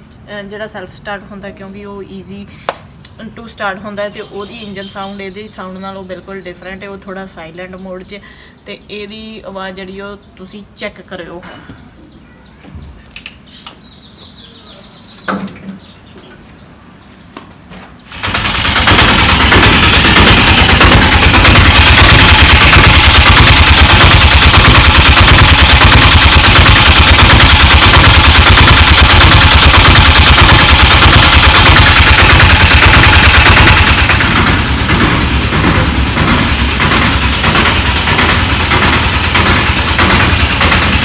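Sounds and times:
small engine starting and running: 0:18.0 - 0:41.0.

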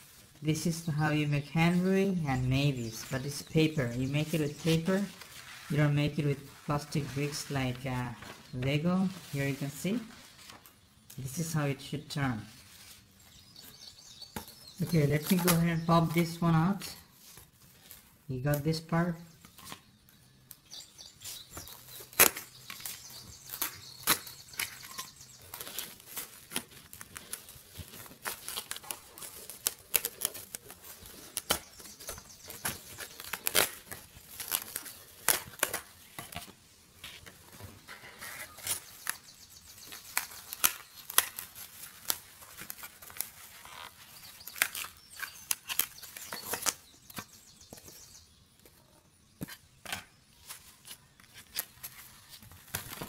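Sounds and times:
cardboard sheet rustling: 0:02.7 - 0:10.8, 0:12.3 - 0:13.8, 0:21.2 - 0:47.2, 0:50.4 - 0:53.0
cardboard pieces popping out: 0:21.5 - 0:36.6.

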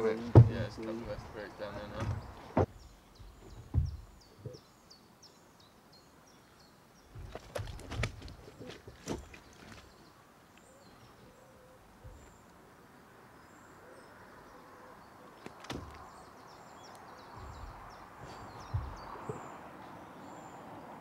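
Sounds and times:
faint birds chirping: 0:00.0 - 0:21.0
low thumps: 0:00.2 - 0:04.6, 0:17.3 - 0:19.5.

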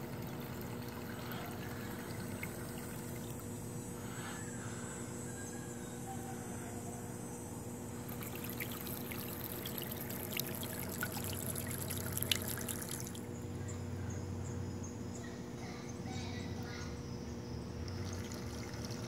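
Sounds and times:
propellers churning water: 0:00.0 - 0:03.6, 0:08.0 - 0:13.3, 0:17.9 - 0:19.0
water lapping: 0:08.1 - 0:13.2.

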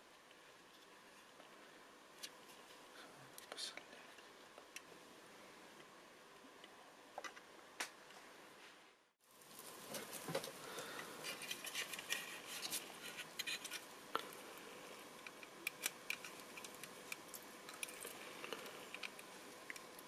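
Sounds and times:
plastic parts clicking and rubbing: 0:11.2 - 0:14.3, 0:15.1 - 0:20.0.

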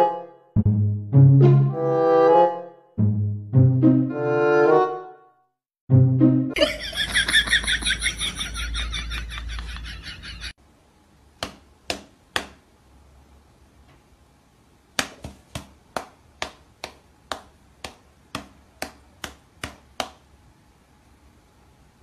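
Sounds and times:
music: 0:00.0 - 0:06.6
sharp slaps of hand and paws: 0:11.4 - 0:12.6, 0:15.0 - 0:20.2.

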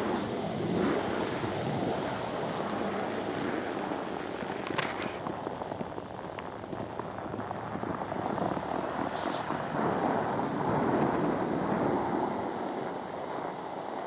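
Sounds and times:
wind buffeting microphone: 0:00.0 - 0:14.0
brief crackle: 0:04.6 - 0:05.3.

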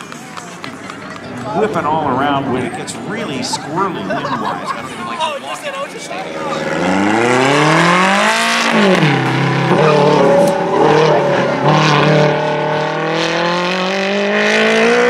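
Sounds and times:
sports car engine revving: 0:06.0 - 0:15.0.

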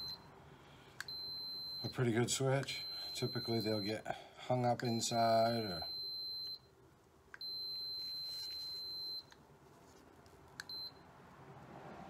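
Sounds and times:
multimeter continuity beeps: 0:01.0 - 0:04.2, 0:04.8 - 0:06.7, 0:07.4 - 0:09.4, 0:10.6 - 0:11.0.

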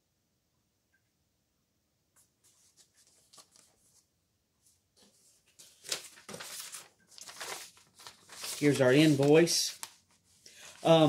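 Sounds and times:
paper rustling: 0:02.2 - 0:11.0.

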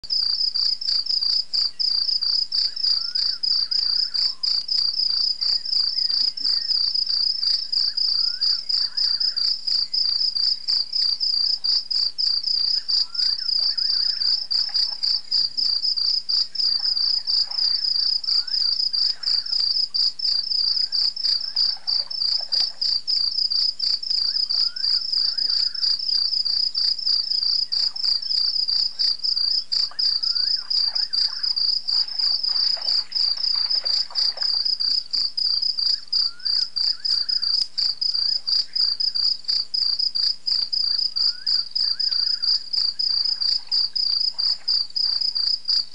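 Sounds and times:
crickets chirping: 0:00.1 - 0:45.9
fainter insect calls: 0:00.1 - 0:45.9.

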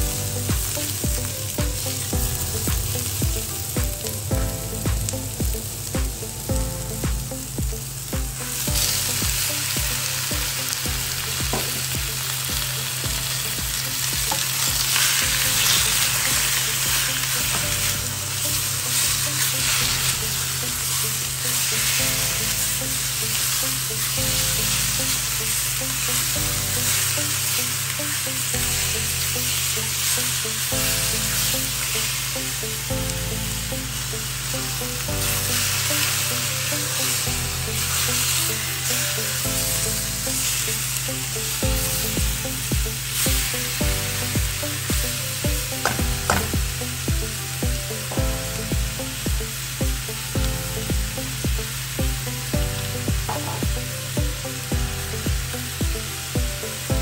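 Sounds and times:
background music with a beat: 0:00.0 - 0:21.3, 0:30.7 - 0:31.4, 0:34.5 - 0:57.0
meat and onions sizzling in a wok: 0:00.0 - 0:57.0.

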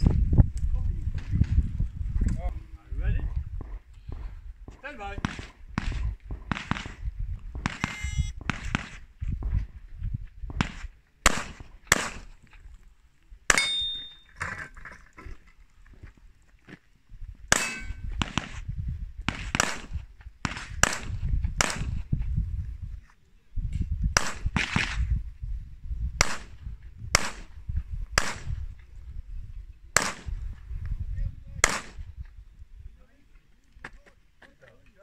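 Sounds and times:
pistol shots: 0:05.2 - 0:07.0, 0:07.6 - 0:09.0, 0:10.6 - 0:12.4, 0:17.5 - 0:18.6, 0:19.3 - 0:22.0, 0:26.2 - 0:26.6, 0:27.2 - 0:27.5, 0:28.2 - 0:28.5, 0:30.0 - 0:30.3, 0:31.6 - 0:32.0.

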